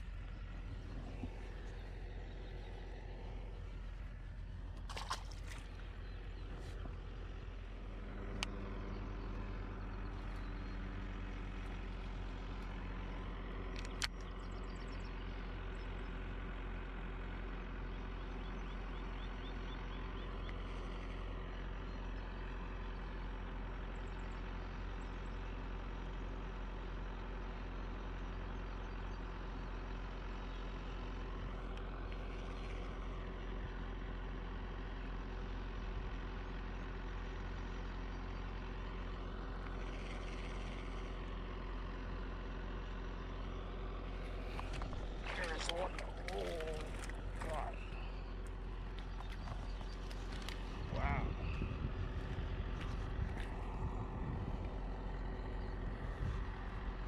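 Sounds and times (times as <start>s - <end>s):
engine idling: 0.0s - 57.0s
sharp clicks: 13.7s - 14.4s.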